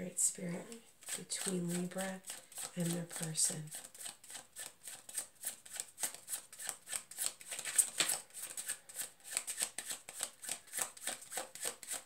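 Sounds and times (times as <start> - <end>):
cards being shuffled: 0.7 - 12.0.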